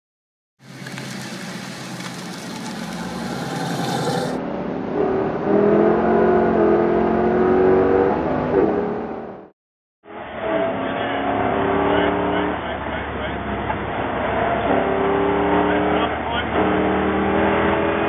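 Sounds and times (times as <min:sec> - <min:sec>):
race car engine running hard: 0:10.1 - 0:18.0.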